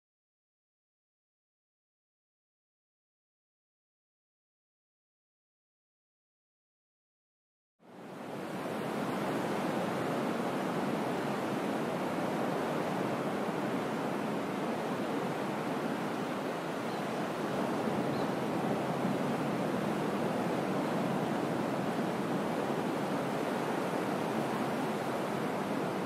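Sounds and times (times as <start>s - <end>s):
ocean surf on a beach: 7.8s - 26.0s.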